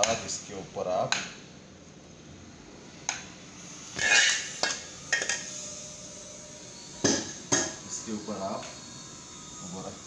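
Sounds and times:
metal spoon scraping ceramic plate: 4.0s - 5.5s.

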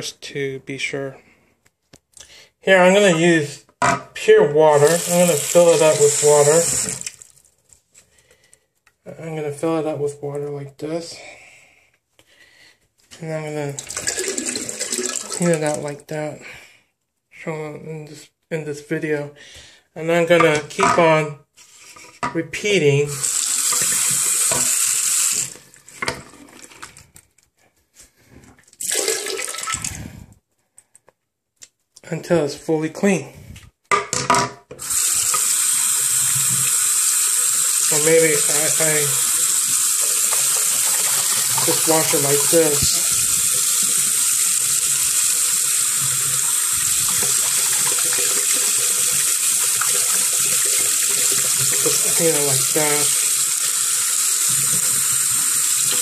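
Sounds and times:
toilet flushing: 4.6s - 7.3s, 13.6s - 15.9s, 23.1s - 27.0s, 28.8s - 29.9s, 34.8s - 56.0s
tap water running into sink: 4.7s - 7.4s, 13.7s - 15.9s, 23.1s - 27.0s, 28.8s - 29.8s, 34.8s - 56.0s.

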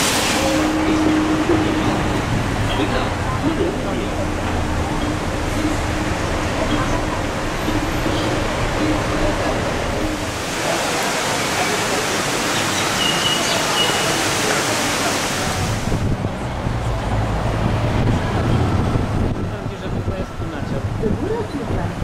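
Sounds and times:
low traffic rumble: 0.0s - 22.0s
wind buffeting microphone: 15.6s - 22.0s.

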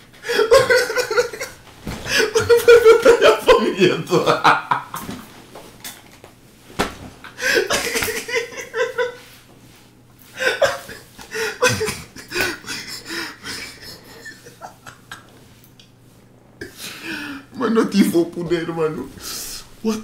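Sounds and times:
man laughing hard: 0.2s - 5.2s, 7.3s - 9.2s, 10.4s - 15.4s.

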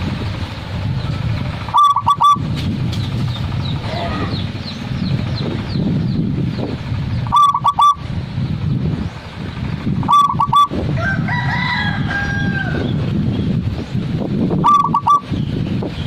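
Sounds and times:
bird calling: 1.6s - 8.1s, 9.9s - 10.8s, 14.6s - 15.6s
dove cooing: 1.7s - 2.5s, 7.3s - 8.0s, 10.0s - 10.7s, 14.6s - 15.3s.

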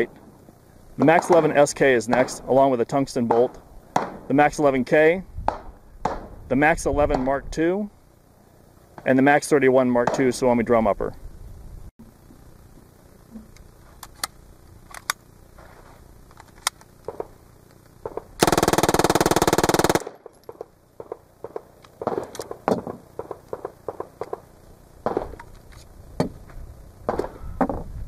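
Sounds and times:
gun handling clicks and clatter: 13.6s - 15.3s, 16.2s - 18.4s, 19.9s - 24.4s, 25.1s - 25.9s
submachine gun burst: 18.1s - 20.3s.

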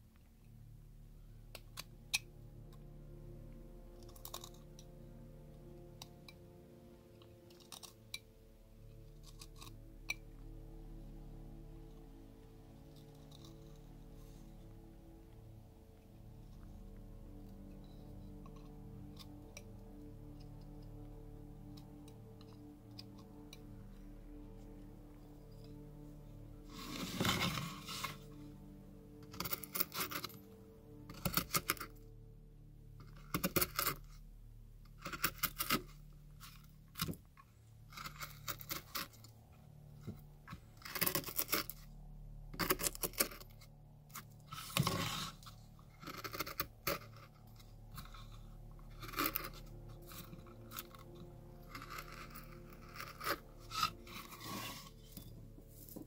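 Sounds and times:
gouge scraping cuts in bark: 44.5s - 48.2s, 48.8s - 55.0s.

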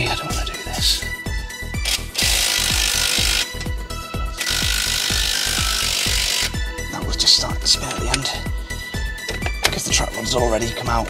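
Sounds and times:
background music with steady beat: 0.0s - 11.0s
impact wrench hammering: 1.8s - 3.8s, 4.4s - 6.6s.

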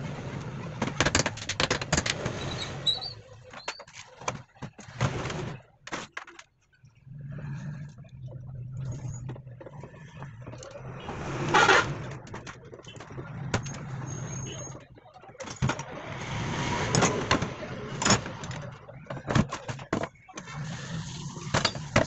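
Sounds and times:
metal scrape: 11.0s - 12.2s.

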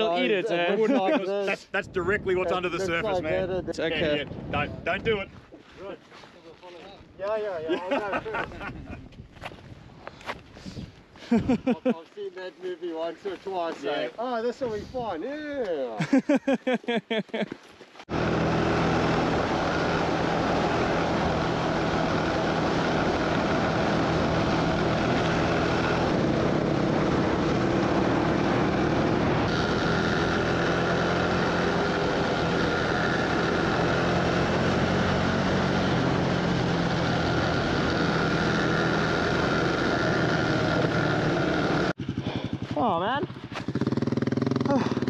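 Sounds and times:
wind noise: 1.6s - 5.5s, 8.0s - 11.8s, 14.6s - 15.2s
motorcycle engine running: 18.1s - 45.0s.

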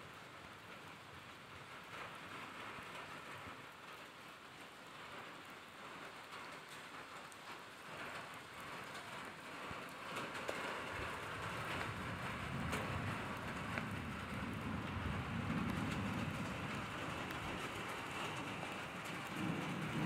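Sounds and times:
steady rain: 0.0s - 20.0s
thunder rumbling: 9.6s - 20.0s.

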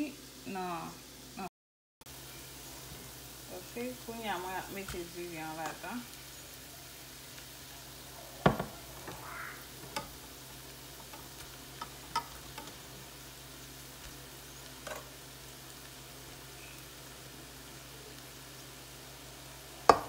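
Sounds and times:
low sizzle of frying: 0.0s - 1.5s, 2.1s - 20.0s
rice being spooned and mixed: 2.1s - 20.0s
utensil knocking on pot: 8.5s - 8.8s.

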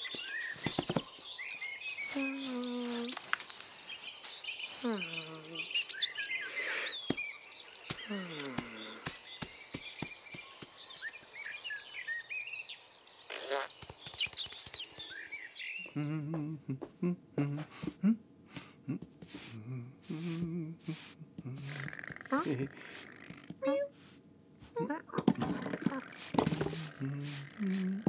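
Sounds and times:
birds chirping: 0.0s - 17.7s, 21.4s - 23.9s, 24.8s - 28.0s
low pulsing vocal sound: 15.9s - 18.2s, 18.8s - 22.8s, 26.7s - 28.0s
hairbrush stroking fur: 20.1s - 24.2s, 26.0s - 28.0s.

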